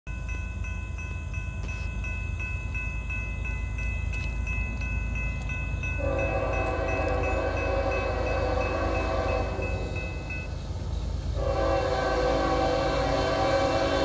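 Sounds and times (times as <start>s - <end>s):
crossing bell ringing: 0.1s - 12.6s
train horn chord: 6.0s - 10.0s, 11.4s - 14.0s.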